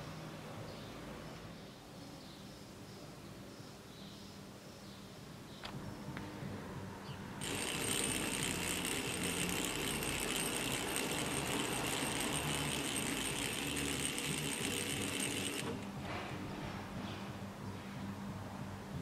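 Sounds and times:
small electric motor whirring rattle: 7.4s - 16.0s.

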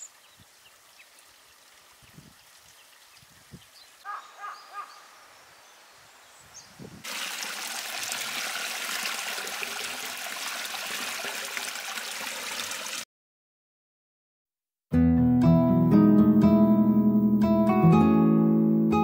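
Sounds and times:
bird chirps: 2.0s - 6.9s
water splashing into drain: 7.0s - 13.0s.

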